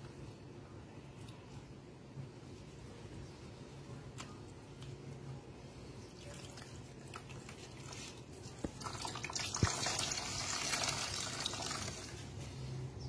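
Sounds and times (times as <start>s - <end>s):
liquid sloshing and dribbling: 6.2s - 12.2s.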